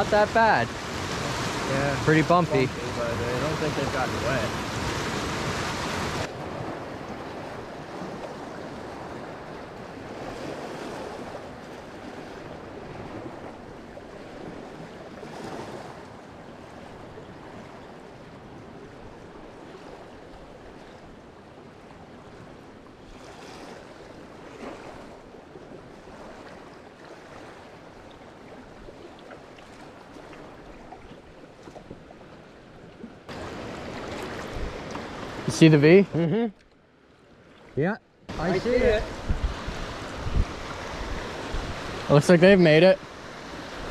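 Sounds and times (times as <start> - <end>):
river rapids rushing: 0.0 - 6.3, 38.3 - 43.9
paddle splashes in water: 4.4 - 35.6.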